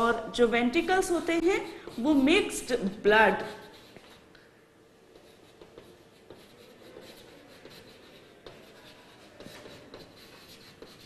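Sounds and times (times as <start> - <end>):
chalk scratching on blackboard: 0.8 - 4.4, 5.1 - 11.0
chalk tapping on board: 1.4 - 2.3, 3.4 - 4.5, 5.2 - 11.0.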